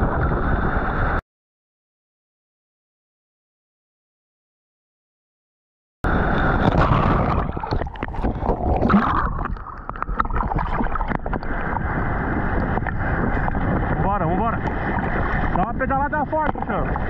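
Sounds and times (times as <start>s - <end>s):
waves breaking: 6.1s - 17.0s
water sloshing and splashing: 6.5s - 15.6s.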